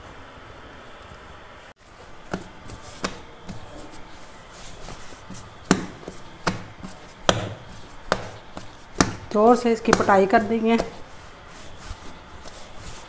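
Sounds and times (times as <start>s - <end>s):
dough thumped on stone countertop: 2.3s - 3.6s, 4.9s - 11.0s.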